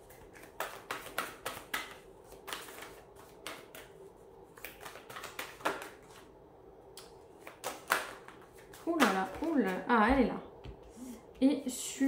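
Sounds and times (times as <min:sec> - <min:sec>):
cards being shuffled by hand: 0:00.0 - 0:06.3, 0:07.2 - 0:09.9.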